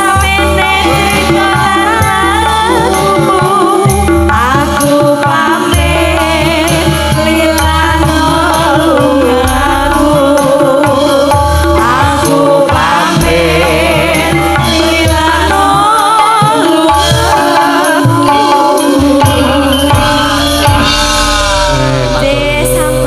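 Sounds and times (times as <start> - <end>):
women singing through microphones: 0.0 - 21.1, 21.9 - 23.0
drum strokes: 0.0 - 23.0
gamelan ensemble: 16.9 - 23.0.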